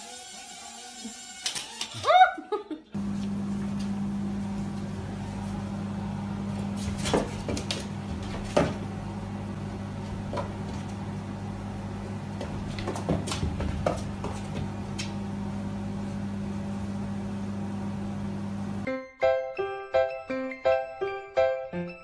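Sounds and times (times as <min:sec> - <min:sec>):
steady low hum: 0:03.0 - 0:18.9.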